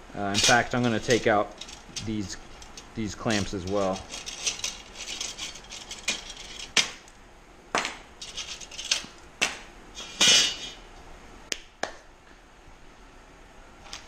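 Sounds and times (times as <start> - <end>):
metallic clicks and clinks: 0.3 - 6.9
metal scrape: 0.3 - 7.0, 8.2 - 9.1, 10.0 - 10.8.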